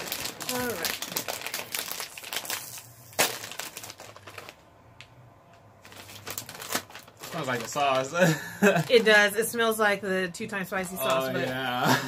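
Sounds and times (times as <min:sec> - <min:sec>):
plastic snack bag crinkling: 0:00.0 - 0:05.1, 0:05.7 - 0:09.2.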